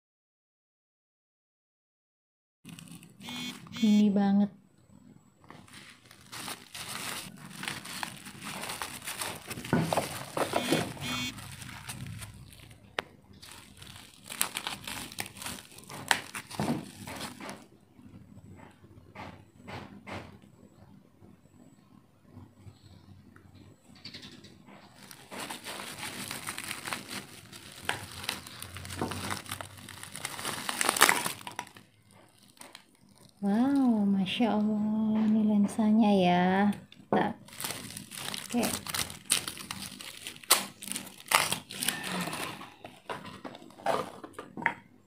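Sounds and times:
bubble wrap crinkling: 0:02.7 - 0:03.8, 0:05.4 - 0:17.7, 0:24.9 - 0:34.8, 0:36.6 - 0:44.2.

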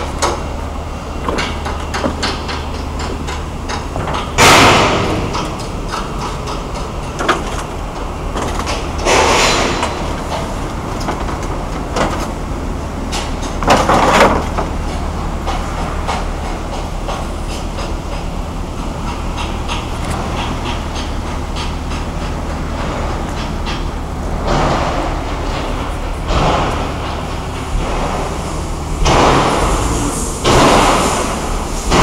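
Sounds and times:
machinery humming: 0:00.0 - 0:32.0
loud rushing bursts: 0:26.3 - 0:32.0.

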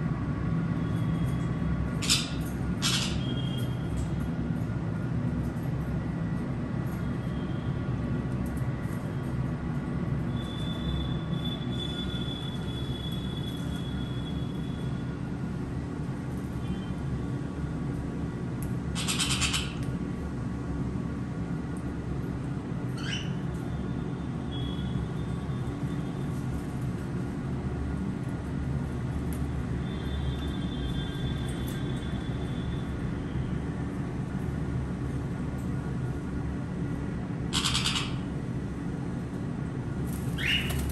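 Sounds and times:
parrot squawking: 0:02.0 - 0:03.3, 0:19.0 - 0:19.8, 0:37.5 - 0:38.3, 0:40.4 - 0:40.8.

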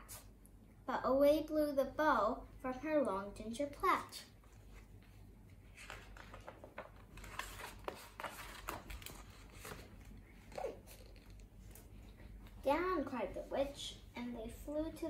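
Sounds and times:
low steady hum: 0:00.0 - 0:15.0
paper pages rustling: 0:04.4 - 0:12.1.

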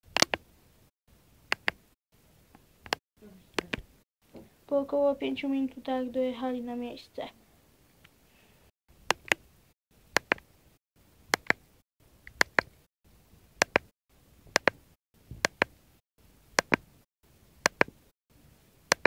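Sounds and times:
sharp clicks in pairs: 0:00.1 - 0:00.4, 0:01.5 - 0:01.8, 0:09.1 - 0:09.4, 0:10.2 - 0:10.4, 0:11.3 - 0:11.6, 0:12.3 - 0:12.8, 0:13.6 - 0:13.9, 0:14.5 - 0:14.8, 0:16.6 - 0:16.8, 0:17.7 - 0:17.9.

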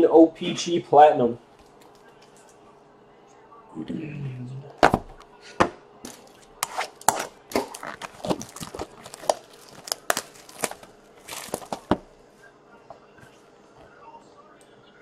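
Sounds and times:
plastic packaging crinkling and tearing: 0:06.1 - 0:12.1.

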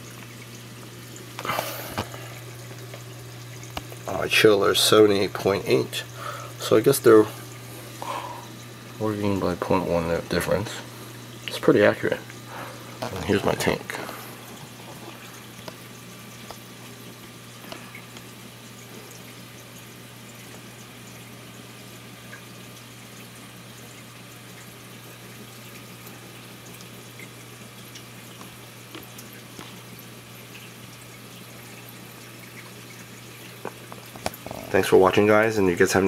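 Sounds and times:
faint drips and ticks: 0:00.0 - 0:36.0
low pump hum: 0:00.0 - 0:36.0
water hissing: 0:06.1 - 0:08.6.

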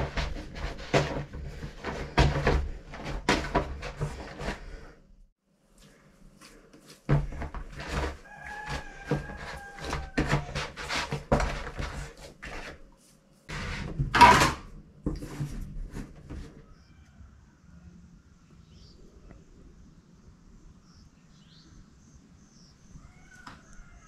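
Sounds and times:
dough kneading thumps: 0:00.0 - 0:04.9, 0:06.8 - 0:12.7.

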